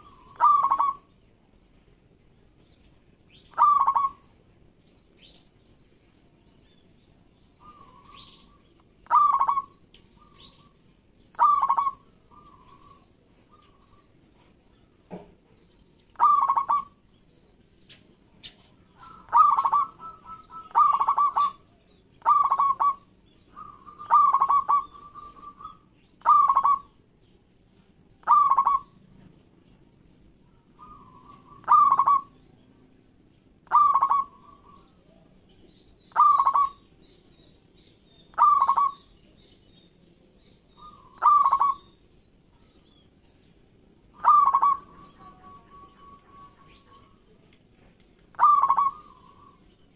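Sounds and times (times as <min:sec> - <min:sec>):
dove cooing: 0:00.0 - 0:01.1, 0:03.5 - 0:04.2, 0:07.6 - 0:14.0, 0:16.1 - 0:17.0, 0:18.9 - 0:26.9, 0:28.2 - 0:29.0, 0:30.5 - 0:32.5, 0:33.6 - 0:35.0, 0:36.1 - 0:36.9, 0:38.3 - 0:39.1, 0:40.8 - 0:41.9, 0:44.1 - 0:47.2, 0:48.3 - 0:49.7.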